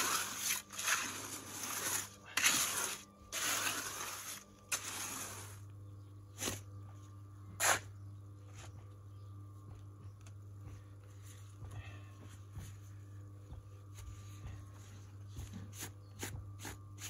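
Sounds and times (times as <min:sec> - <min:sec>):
trowel scraping concrete: 0:00.0 - 0:05.7, 0:07.6 - 0:07.9
low steady hum: 0:00.0 - 0:17.0.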